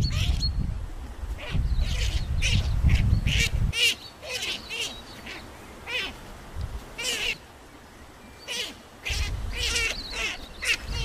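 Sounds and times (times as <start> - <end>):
wind rumble on microphone: 0.0 - 3.9, 6.3 - 7.0, 9.0 - 11.0.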